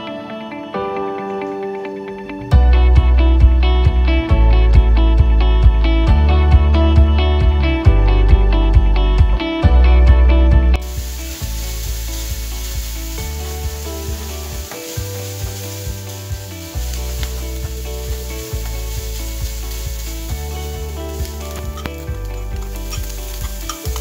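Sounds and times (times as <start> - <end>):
bacon sizzling in a pan: 10.8 - 24.0.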